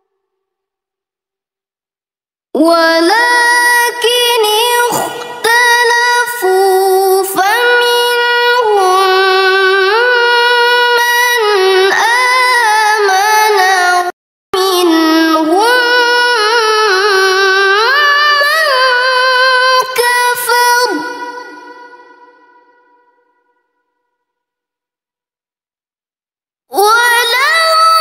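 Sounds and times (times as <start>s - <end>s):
girl reciting melodically: 2.6s - 22.8s, 26.7s - 28.0s.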